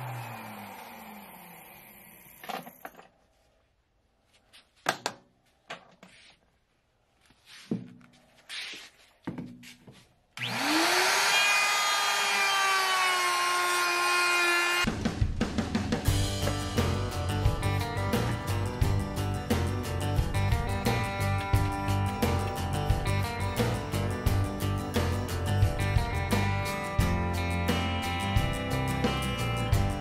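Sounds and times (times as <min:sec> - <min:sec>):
router motor whine: 0:00.0 - 0:03.0, 0:10.4 - 0:14.9.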